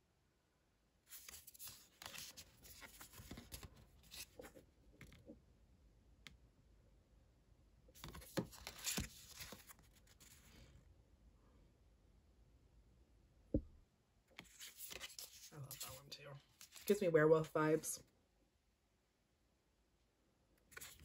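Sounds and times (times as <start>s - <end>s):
cards rustling and sliding: 1.1s - 5.2s, 8.0s - 10.7s, 14.4s - 17.0s, 20.7s - 21.0s.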